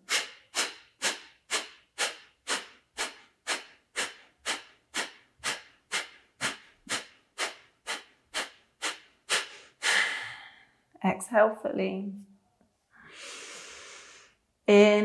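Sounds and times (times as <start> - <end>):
forceful exhales through nose: 0.0 - 10.5, 13.0 - 14.4.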